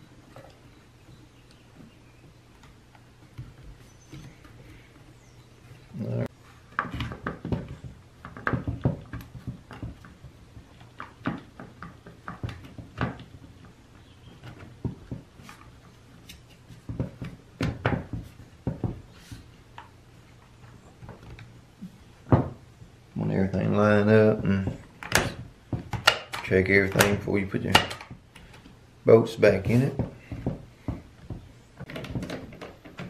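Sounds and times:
plastic parts clicking and knocking: 6.7 - 19.1, 24.6 - 28.8, 30.0 - 33.0.

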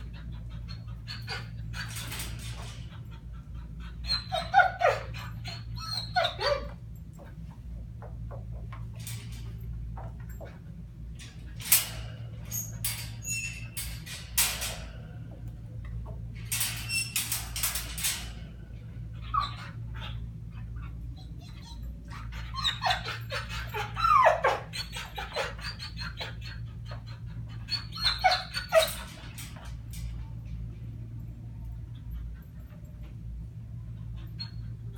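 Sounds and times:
dog whining: 0.0 - 7.4, 11.8 - 13.8, 19.0 - 29.7, 33.7 - 34.9
steady low hum: 0.0 - 34.9
sharp clicks and rattles: 0.1 - 3.6.

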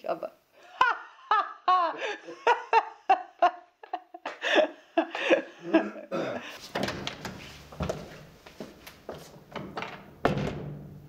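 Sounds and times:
woman laughing: 0.6 - 6.5.

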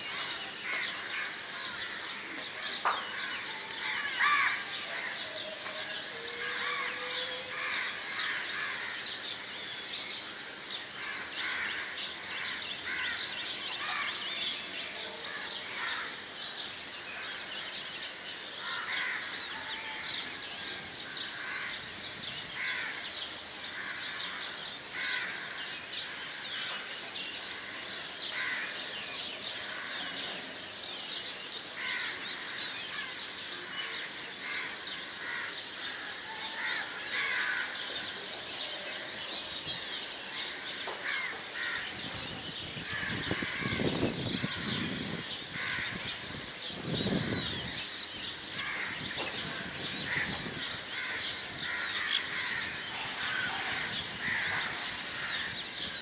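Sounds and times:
small birds chirping: 0.0 - 56.0
crows cawing: 3.1 - 5.2, 18.6 - 20.0, 22.6 - 23.0, 23.8 - 26.2, 31.8 - 33.8, 34.4 - 38.0, 40.3 - 41.9, 45.5 - 46.1, 48.6 - 55.6.

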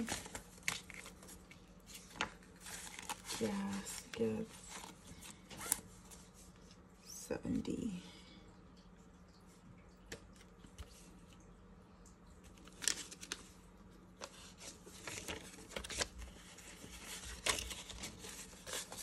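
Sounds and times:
banknotes rustling and snapping: 0.0 - 5.9, 12.5 - 13.6, 14.2 - 19.0.

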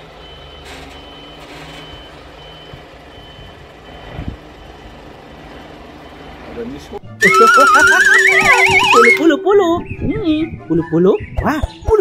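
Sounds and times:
diesel engine running: 0.0 - 9.2
reversing alarm beeping: 0.2 - 4.8, 7.2 - 9.3.

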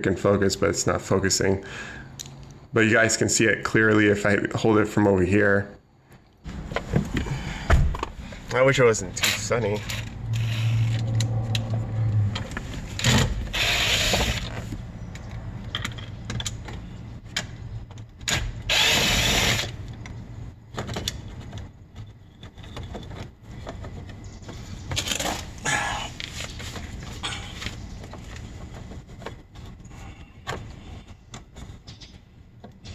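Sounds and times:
cordless drill running: 13.5 - 14.4, 18.7 - 19.8.

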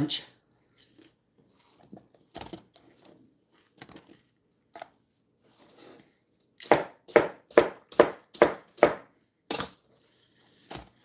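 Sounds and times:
knife chopping on cutting board: 6.6 - 9.7.

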